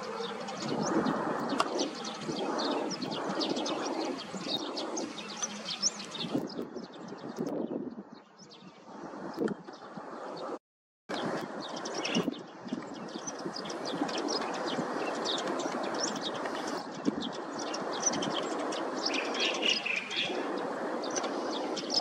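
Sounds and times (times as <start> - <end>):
jet engines rumbling: 0.0 - 6.6
small birds chirping: 0.0 - 22.0.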